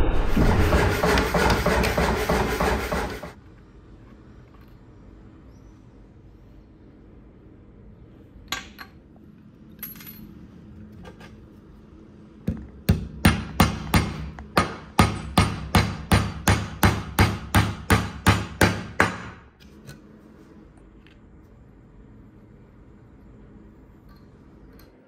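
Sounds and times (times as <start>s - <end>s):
hammer striking nail: 0.4s - 3.4s, 12.5s - 19.4s.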